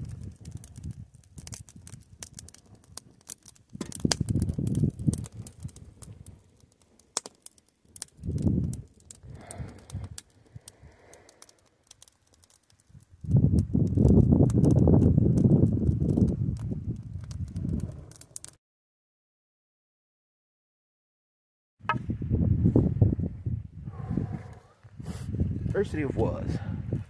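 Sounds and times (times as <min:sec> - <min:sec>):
campfire crackling: 0:00.0 - 0:18.6, 0:22.4 - 0:27.0
sharp fire pops: 0:00.0 - 0:18.6.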